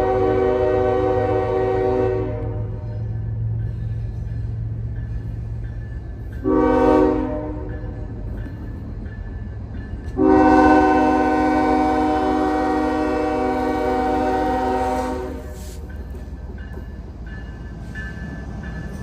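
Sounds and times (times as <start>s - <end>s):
train air horn blasts: 0.0s - 2.9s, 6.4s - 7.7s, 10.2s - 15.8s
train rumbling: 0.0s - 19.0s.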